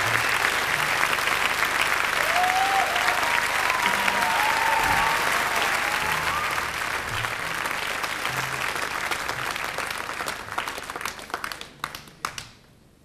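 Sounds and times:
audience applauding: 0.0s - 12.6s.

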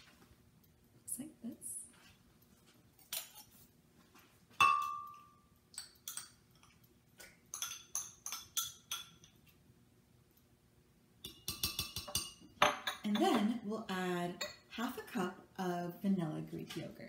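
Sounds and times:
kitchenware clinking: 3.0s - 3.6s, 4.5s - 9.5s, 11.2s - 13.6s.

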